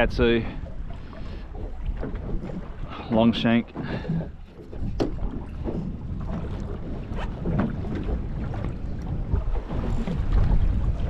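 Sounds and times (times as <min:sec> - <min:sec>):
water lapping against boat hull: 0:00.0 - 0:11.0
wind rumbling on microphone: 0:00.0 - 0:11.0.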